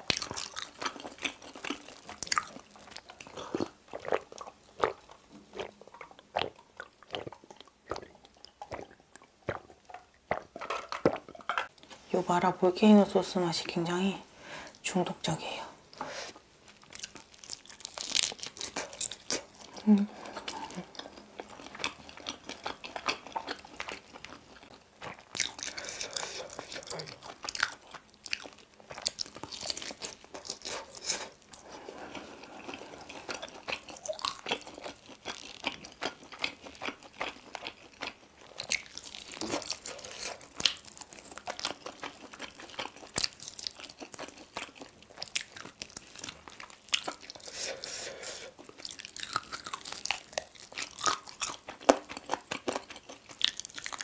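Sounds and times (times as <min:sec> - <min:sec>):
chewing and crunching: 0:00.0 - 0:11.8, 0:16.7 - 0:54.0.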